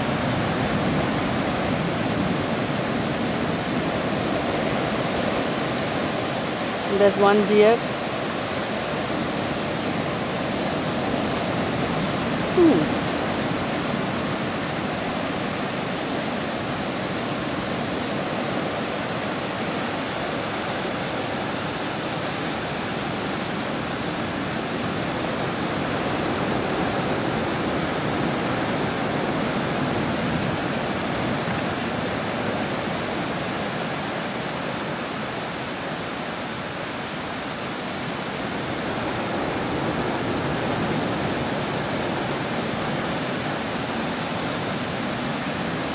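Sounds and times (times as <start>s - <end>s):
sea surf breaking on a beach: 0.0s - 45.9s
short falling call: 12.5s - 13.2s.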